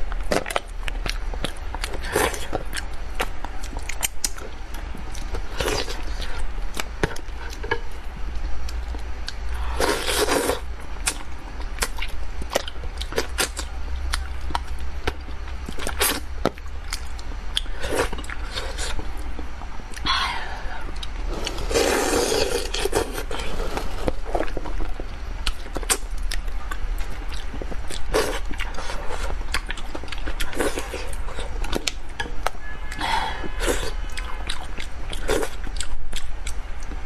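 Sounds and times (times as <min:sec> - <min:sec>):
wet chewing and lip-smacking: 0:00.0 - 0:07.8, 0:08.6 - 0:20.1, 0:24.2 - 0:33.0, 0:33.6 - 0:37.0
steady low hum: 0:00.0 - 0:37.0
slurping: 0:21.0 - 0:24.2.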